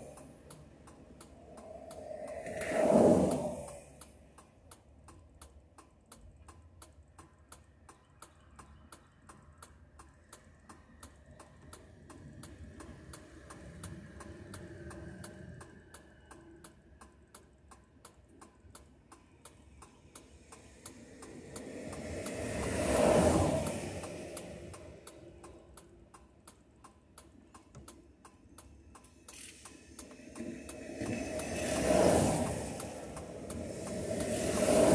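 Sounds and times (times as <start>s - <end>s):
vehicle passing: 0.0s - 4.0s, 20.3s - 25.8s, 29.4s - 34.9s
faint traffic hum: 0.0s - 34.9s
flasher relay ticking: 0.0s - 34.9s.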